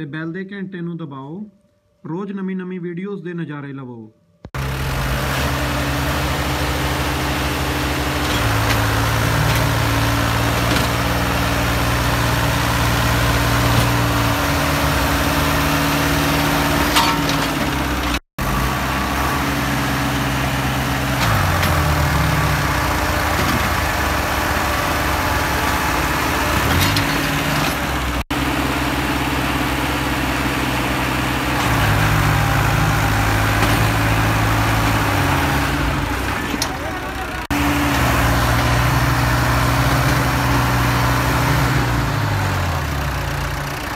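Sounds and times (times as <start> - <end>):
tractor diesel engines labouring: 4.5 - 43.9.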